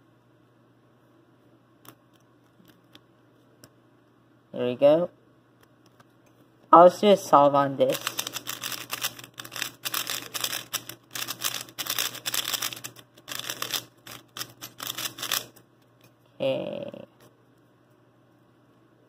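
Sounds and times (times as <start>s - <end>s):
puzzle cube clicking: 7.9s - 15.6s.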